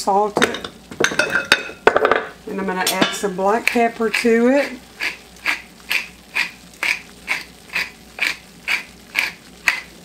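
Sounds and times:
pepper mill grinding: 2.8 - 10.0.

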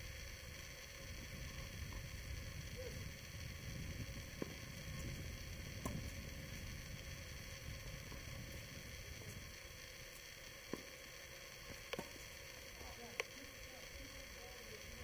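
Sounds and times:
steady low rumble: 0.0 - 15.0
tennis balls struck by rackets: 5.8 - 6.2.

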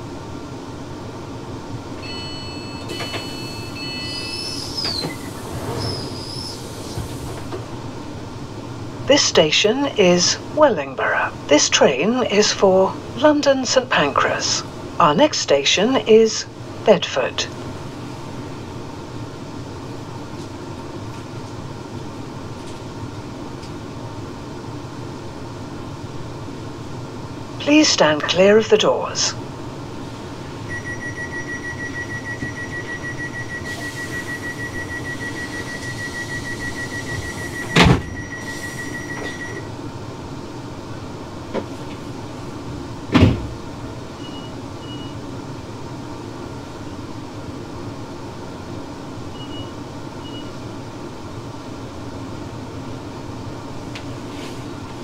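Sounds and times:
hum of train equipment: 0.0 - 55.0
rapid high-pitched door warning beeps: 2.0 - 6.6, 30.7 - 39.7, 49.4 - 50.6
train doors shutting with thud: 2.0 - 7.7, 33.6 - 39.6, 43.1 - 43.7.

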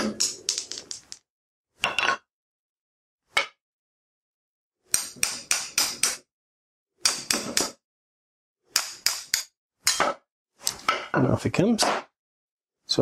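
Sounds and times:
hammer striking metal: 4.9 - 6.2, 7.0 - 7.8, 8.7 - 10.2.

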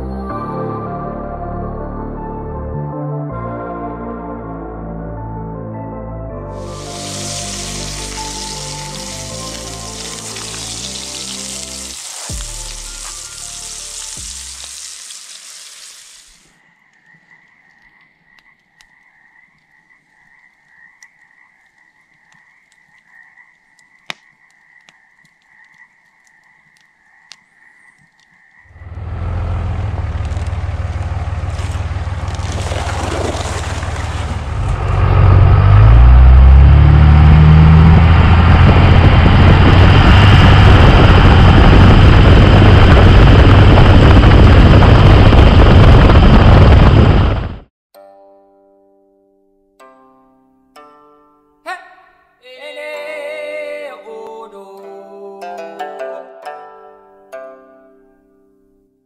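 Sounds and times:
patties sizzling in a skillet: 6.6 - 16.4
fire crackling: 6.6 - 16.5, 21.6 - 28.4, 29.0 - 35.7, 38.6 - 47.7
frogs trilling: 6.7 - 29.0
truck driving on dirt road: 28.7 - 47.6.

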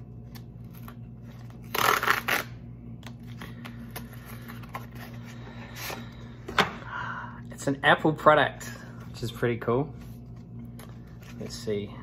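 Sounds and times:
cardboard envelope ripping: 0.3 - 2.6.

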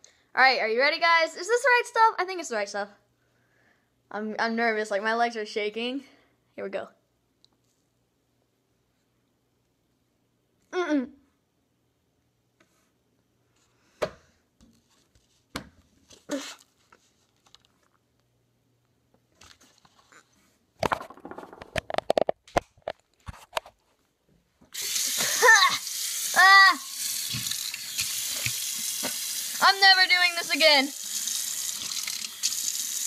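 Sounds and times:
boy sputtering and coughing: 25.1 - 25.8
boy crying out: 25.1 - 27.0
tap water running into sink: 26.9 - 33.0.

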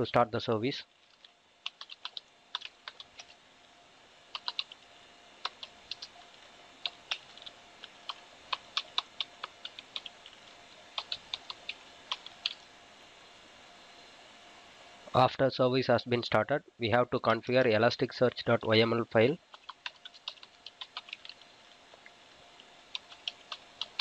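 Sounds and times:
computer keyboard typing: 1.2 - 3.3, 4.3 - 4.8, 5.4 - 6.2, 6.8 - 12.6, 19.5 - 21.4, 22.9 - 24.0.

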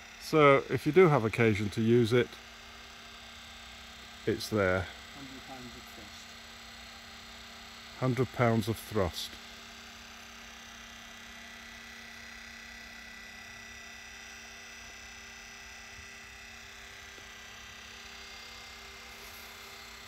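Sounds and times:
electric motor humming: 0.0 - 20.0.

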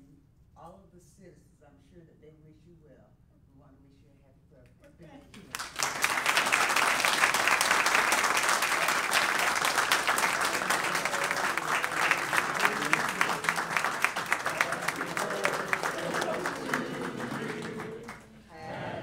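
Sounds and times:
audience applauding: 5.5 - 19.0.

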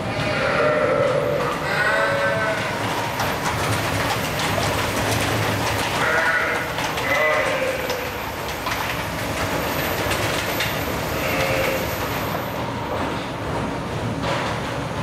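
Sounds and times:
sheep bleating: 0.1 - 2.8, 6.0 - 8.2, 11.2 - 11.9.

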